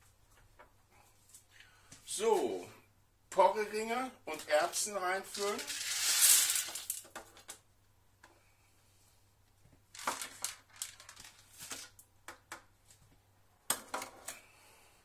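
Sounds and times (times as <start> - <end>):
plastic packaging crinkling: 5.3 - 7.0, 9.9 - 12.0.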